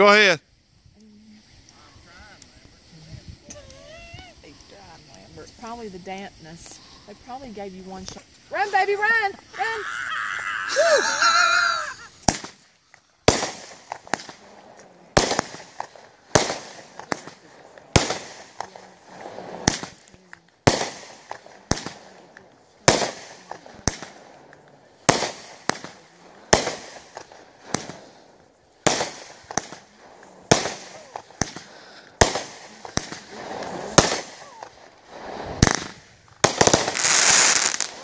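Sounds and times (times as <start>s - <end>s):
firework cake bangs: 12.2s - 12.6s, 13.2s - 38.0s.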